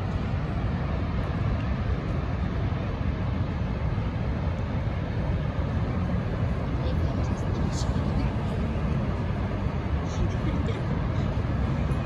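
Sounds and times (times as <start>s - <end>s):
waterfall roaring: 0.0s - 12.0s.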